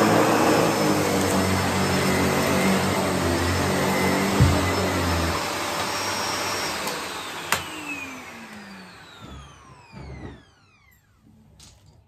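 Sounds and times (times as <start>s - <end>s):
vacuum cleaner running: 0.0s - 11.5s
thump: 4.3s - 4.8s.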